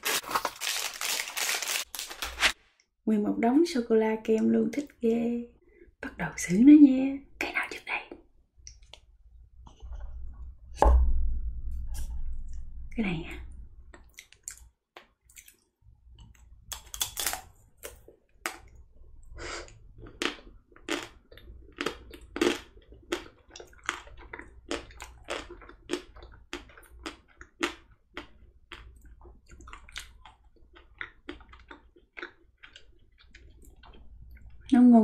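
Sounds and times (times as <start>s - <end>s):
crunching ice cream shell: 0.0s - 2.6s
wet chewing: 13.9s - 18.8s, 19.6s - 34.7s.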